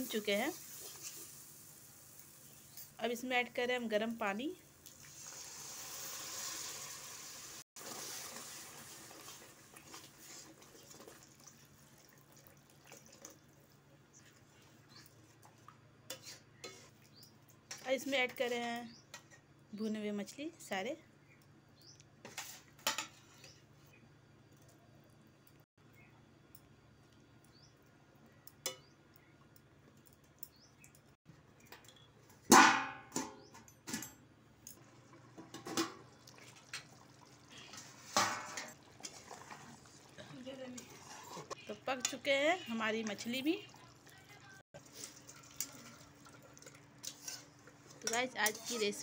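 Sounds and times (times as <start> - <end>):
water pouring into pan: 4.8 - 13.6, 34.8 - 41.5, 44.8 - 48.0
spatula stirring gravy: 8.9 - 11.7, 12.8 - 17.8, 36.3 - 42.3, 44.8 - 49.0
spatula scraping pan: 16.1 - 17.0, 22.2 - 23.7, 37.6 - 42.3, 44.8 - 49.0
metal plate clattering: 38.1 - 38.7.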